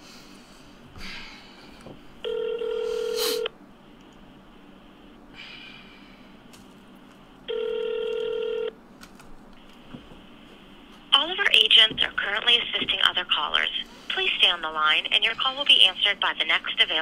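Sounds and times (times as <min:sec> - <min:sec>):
telephone ringback tone: 0:02.2 - 0:03.5, 0:07.5 - 0:08.8.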